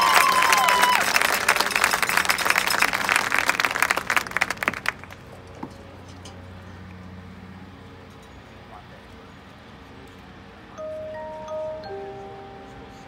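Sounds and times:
crowd applauding and cheering: 0.0 - 5.2.

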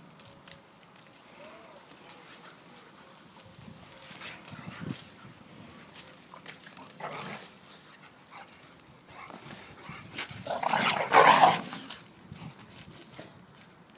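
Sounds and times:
dogs vocalising while play-fighting: 8.3 - 12.0.

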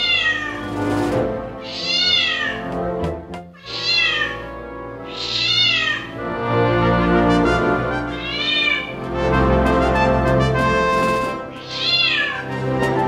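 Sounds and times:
cat meowing: 0.0 - 0.7, 1.6 - 2.8, 3.6 - 6.2, 8.1 - 8.9, 11.6 - 12.5
background music: 0.0 - 13.0.

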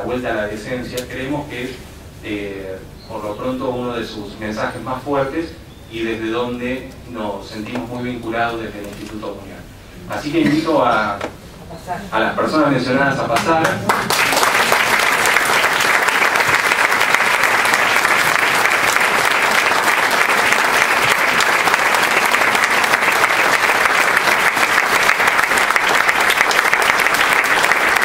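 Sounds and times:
audience applauding: 13.4 - 28.0.

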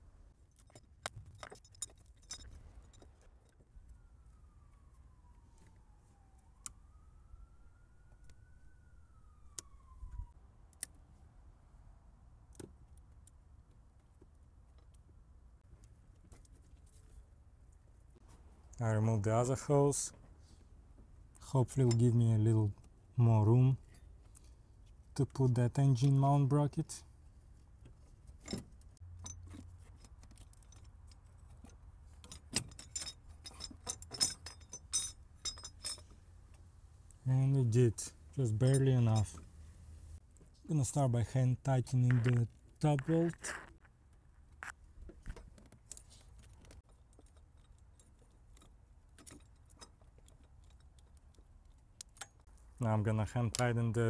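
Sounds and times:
tools clicking and knocking: 0.5 - 3.6, 27.8 - 36.2, 45.2 - 52.5
faint falling wailing tone: 3.7 - 10.4.

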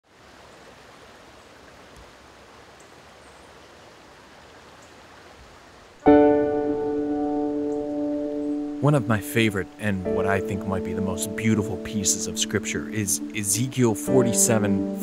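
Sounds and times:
stream flowing over rocks: 0.0 - 14.6
sustained musical chord: 6.1 - 15.0.

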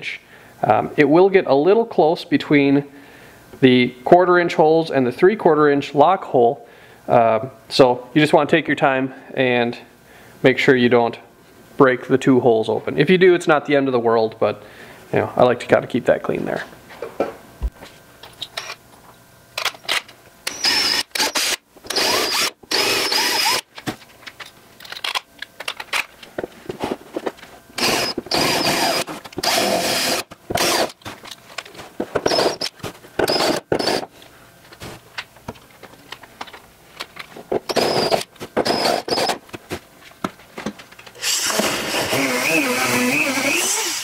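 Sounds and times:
cordless drill whining: 20.5 - 23.6, 27.8 - 31.0, 32.3 - 32.7, 33.3 - 34.1, 37.7 - 39.4, 41.2 - 44.0.

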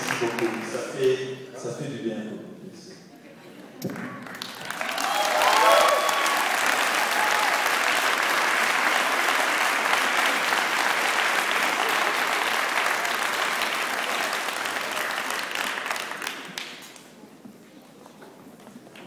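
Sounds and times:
audience applauding: 0.0 - 1.2, 3.9 - 17.2.

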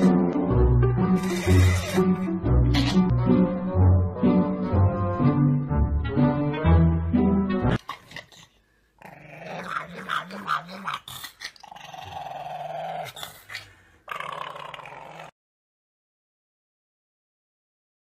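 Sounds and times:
music: 0.0 - 7.8
dog growling: 1.2 - 2.2, 7.8 - 15.4.

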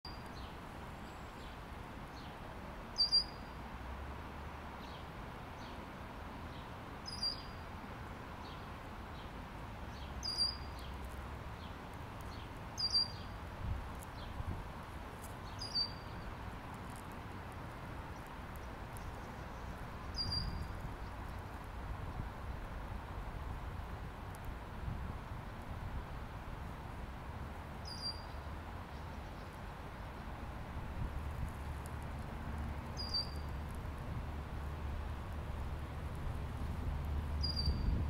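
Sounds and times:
steady background hiss: 0.1 - 38.0
faint quick bird chirps: 3.0 - 3.6, 7.0 - 7.6, 20.1 - 20.7, 33.0 - 33.5, 37.4 - 37.9.

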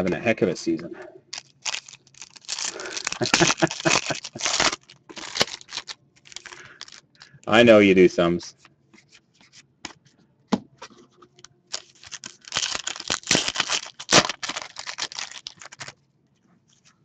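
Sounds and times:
crinkling of card wrappers: 1.3 - 7.5, 11.7 - 16.0.

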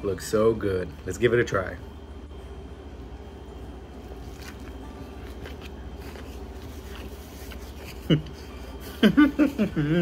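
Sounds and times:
steady low hum: 0.0 - 10.0
chewing with soft crunches: 3.9 - 8.4.

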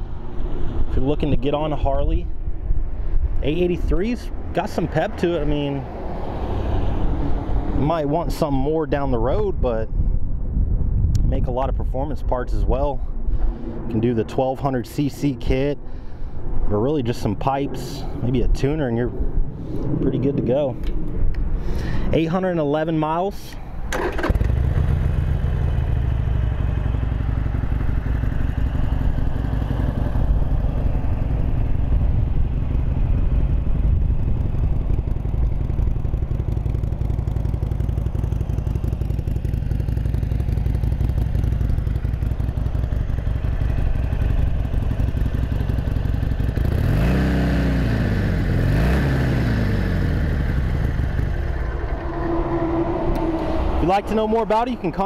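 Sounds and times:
motorcycle engine idling and revving: 0.0 - 9.5, 23.8 - 55.0.

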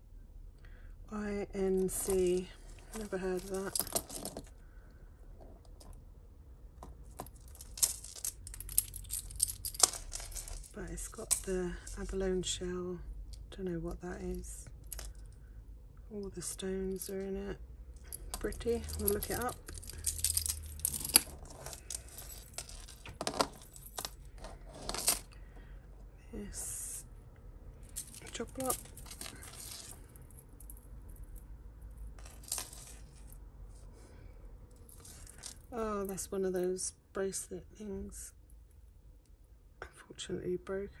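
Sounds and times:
metal necklace clinking: 1.6 - 4.6, 6.8 - 12.3, 14.2 - 15.4, 18.0 - 25.4, 27.7 - 33.4, 34.7 - 36.2.

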